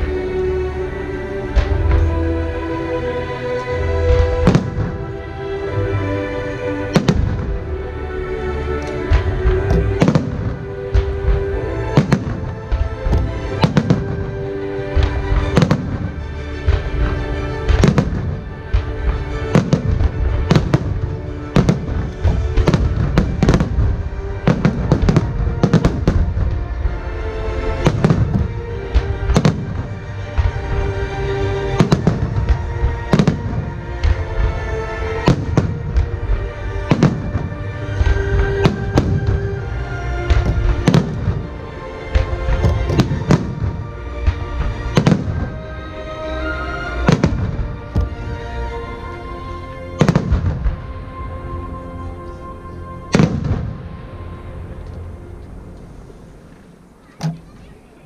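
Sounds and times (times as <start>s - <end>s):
music: 0.0s - 58.0s
fireworks bangs: 4.1s - 5.2s, 6.9s - 7.6s, 9.0s - 45.7s, 47.0s - 48.4s, 49.9s - 51.0s, 53.1s - 54.0s.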